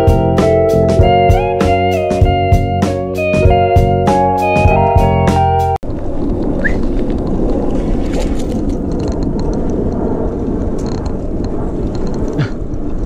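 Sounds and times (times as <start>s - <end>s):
wind on microphone: 5.8s - 13.0s.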